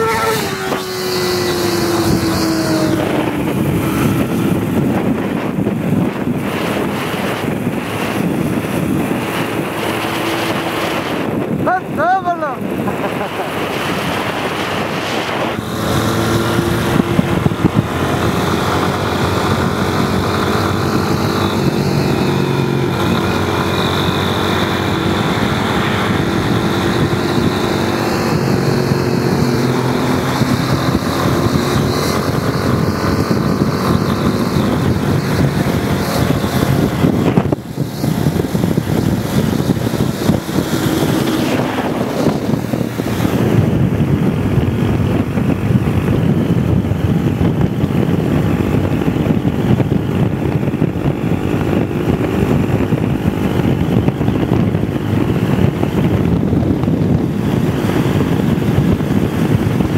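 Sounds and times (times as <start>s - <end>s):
motorcycle engine running: 0.0s - 59.9s
wind noise on microphone: 0.0s - 59.9s.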